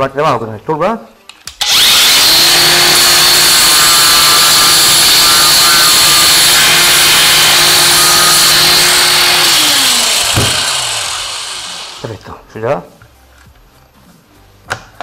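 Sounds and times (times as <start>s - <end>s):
power sander grinding plastic: 1.6s - 12.2s.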